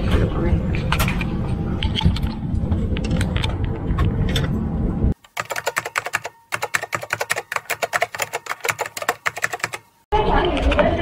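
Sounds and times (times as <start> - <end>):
keyboard typing clicks: 5.2 - 9.9.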